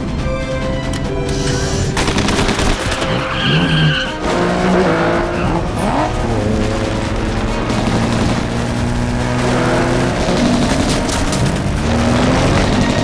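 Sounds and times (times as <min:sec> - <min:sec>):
engines revving: 0:01.8 - 0:13.0
tyres skidding and squealing: 0:02.8 - 0:07.8, 0:09.4 - 0:13.0.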